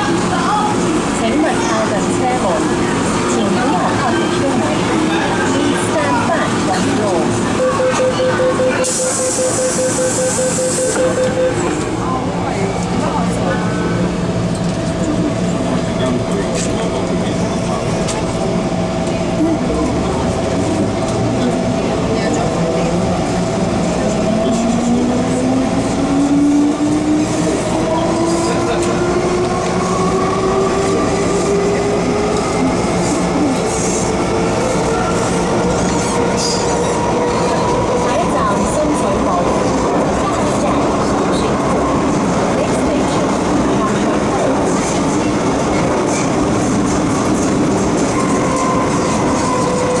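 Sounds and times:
wheels rumbling on rails: 0:11.3 - 0:50.0.

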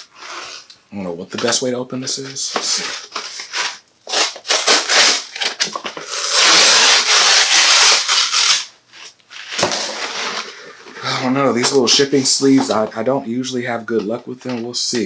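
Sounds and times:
paper tearing and crinkling: 0:02.5 - 0:11.2.

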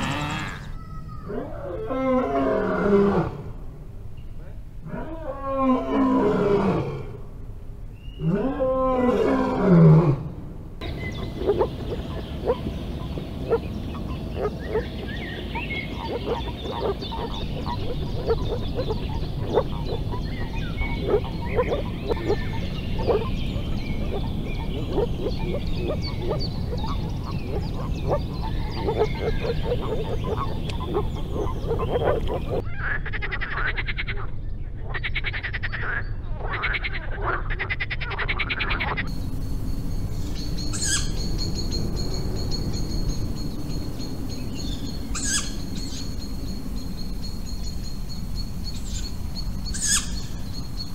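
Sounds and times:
lion roaring: 0:04.8 - 0:07.2, 0:08.2 - 0:10.3
frogs calling softly: 0:10.8 - 0:50.9
frog croaking in rattling pulses: 0:13.5 - 0:33.2, 0:37.8 - 0:50.9.

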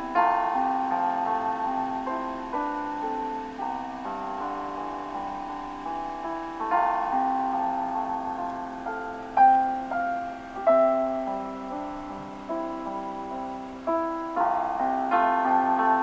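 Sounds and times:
slow keyboard chords: 0:00.0 - 0:16.0.

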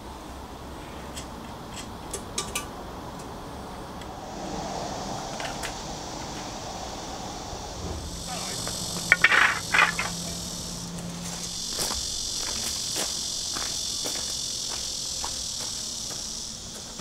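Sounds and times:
insects droning: 0:00.0 - 0:17.0
footsteps on gravel: 0:08.3 - 0:10.3.

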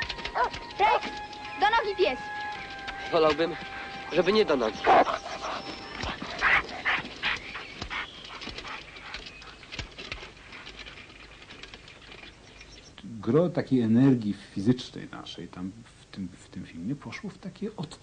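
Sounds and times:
dog barking: 0:00.3 - 0:00.6, 0:04.8 - 0:08.0.

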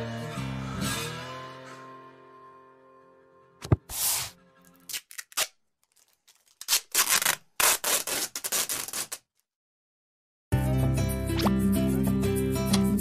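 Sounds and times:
rubbing and scraping noises: 0:03.6 - 0:04.9, 0:06.0 - 0:09.2.

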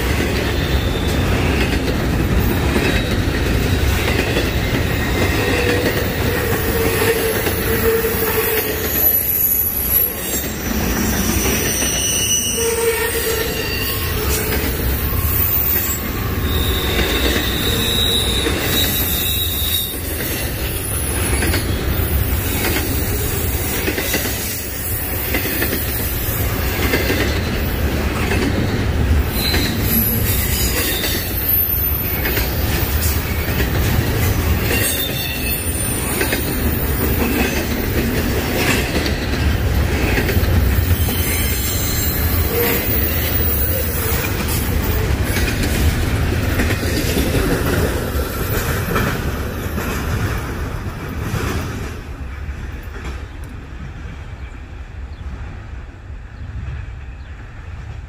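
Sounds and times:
steel wheels rumbling on rail: 0:00.0 - 0:58.0
high-pitched wheel squeals: 0:02.9 - 0:22.2, 0:29.3 - 0:32.3, 0:40.8 - 0:44.4.

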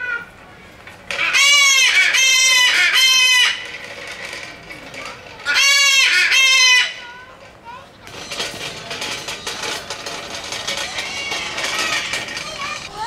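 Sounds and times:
bird calling loudly: 0:01.1 - 0:03.8, 0:05.4 - 0:07.1.

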